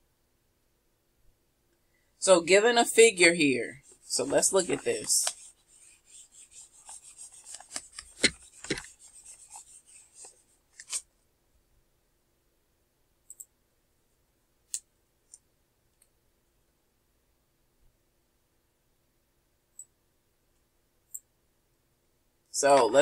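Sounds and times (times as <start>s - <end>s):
whiteboard being wiped: 3.8s - 11.0s.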